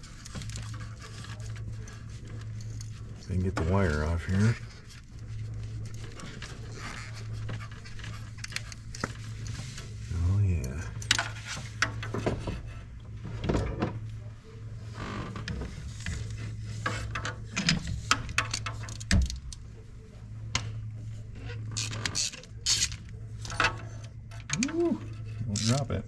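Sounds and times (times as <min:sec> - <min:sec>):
steady low hum: 0:00.0 - 0:26.0
ratchet metal clicks and scrapes: 0:15.9 - 0:19.6, 0:21.4 - 0:26.0.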